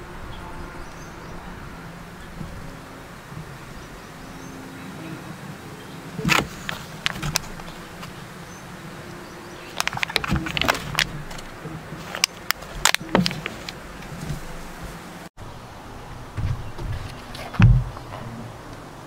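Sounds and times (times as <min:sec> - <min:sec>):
steady low hum: 0:00.0 - 0:19.0
foil pan crinkling: 0:06.2 - 0:08.2, 0:09.7 - 0:14.6.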